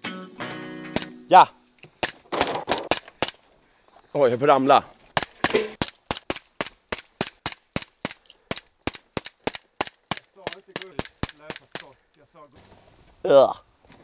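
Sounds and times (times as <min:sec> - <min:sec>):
toy pistol firing sharp shots: 0:01.0 - 0:01.2, 0:02.0 - 0:03.4, 0:05.2 - 0:11.9.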